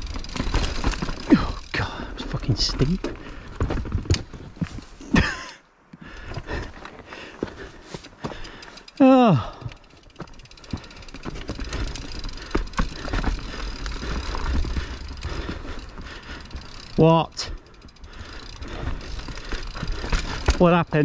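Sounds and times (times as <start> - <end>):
bike clattering over rocks: 0.0 - 5.4, 9.5 - 17.2, 17.8 - 21.0
rider groaning: 0.6 - 3.7, 8.7 - 20.7.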